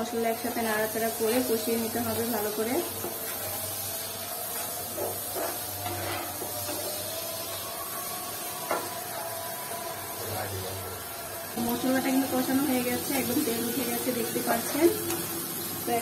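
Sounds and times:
onions sizzling in hot oil: 0.0s - 16.0s
spatula scraping pan: 2.4s - 7.6s.

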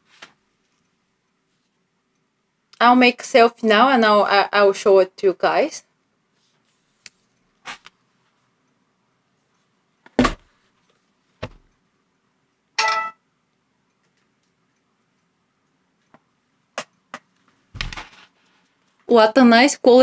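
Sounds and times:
thump: 10.2s - 10.5s.

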